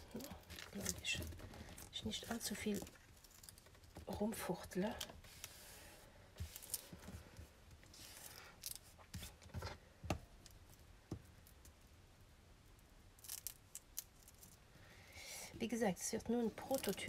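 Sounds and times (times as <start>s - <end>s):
hands smoothing paper: 5.2s - 7.1s.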